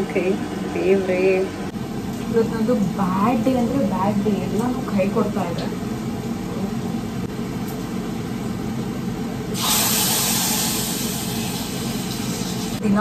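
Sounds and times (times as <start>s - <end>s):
steady low hum: 0.0s - 13.0s
frying pan sizzling: 1.8s - 13.0s.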